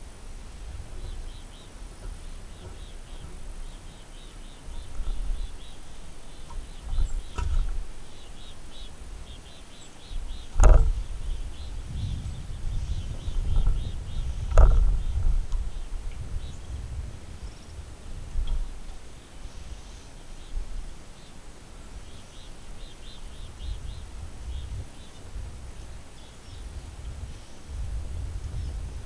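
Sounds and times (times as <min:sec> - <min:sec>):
wind rumble on microphone: 0:00.0 - 0:29.0
faint high chirping: 0:00.7 - 0:17.8
sharp knocks: 0:10.5 - 0:11.2, 0:13.5 - 0:15.6.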